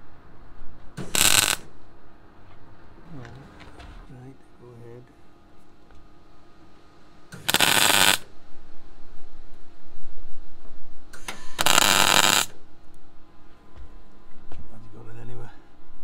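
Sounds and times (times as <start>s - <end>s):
welder crackling sizzle: 1.0s - 1.7s, 7.4s - 8.3s, 11.2s - 12.6s.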